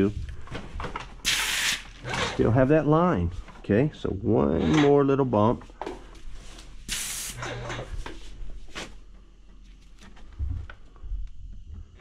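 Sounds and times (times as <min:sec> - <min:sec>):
paint spray gun hissing: 0:01.2 - 0:01.9, 0:06.9 - 0:07.4.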